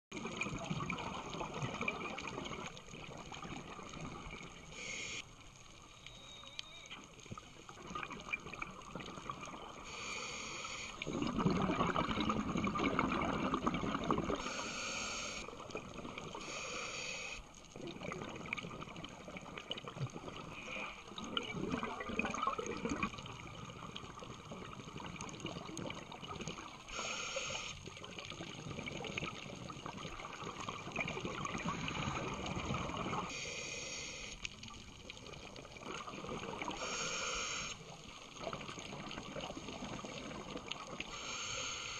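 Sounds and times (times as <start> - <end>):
bubbling exhalations underwater: 0.2 - 4.6, 11.0 - 14.4, 17.8 - 26.8, 28.1 - 33.3, 35.4 - 36.8
regulator hissing inhalations: 4.7 - 5.2, 9.8 - 11.0, 14.4 - 15.4, 16.4 - 17.4, 26.9 - 27.8, 33.3 - 34.4, 36.7 - 37.8, 41.1 - 41.9.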